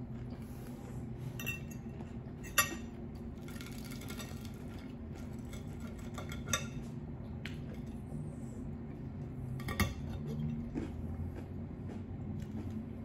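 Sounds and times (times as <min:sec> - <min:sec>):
steady low hum: 0:00.0 - 0:13.0
utensils clinking against dishes: 0:01.4 - 0:06.9.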